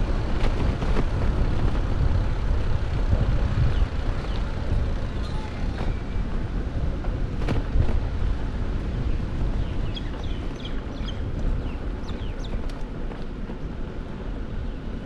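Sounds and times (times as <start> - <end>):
wind rumbling on microphone: 0.0 - 15.0
bird chirping: 9.6 - 12.6.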